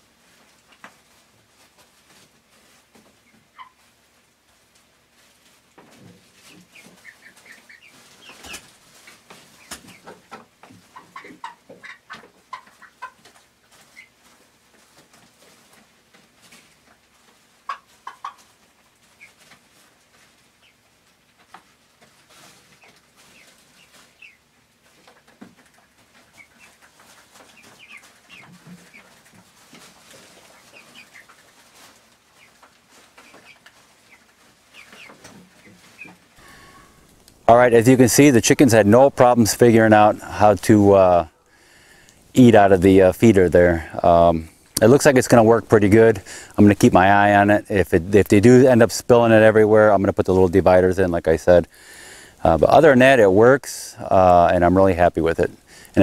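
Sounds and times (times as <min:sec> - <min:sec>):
chickens clucking: 0:00.0 - 0:56.0
chickens pecking feeder taps: 0:00.3 - 0:04.0, 0:04.6 - 0:36.4.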